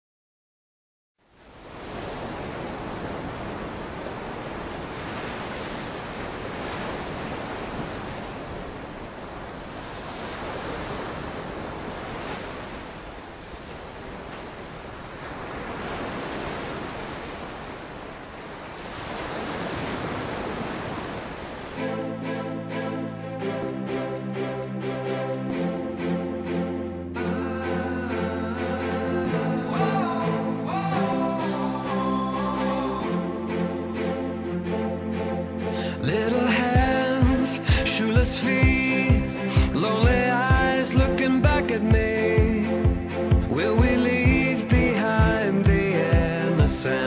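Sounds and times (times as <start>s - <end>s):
rushing surf-like noise: 1.3s - 22.4s.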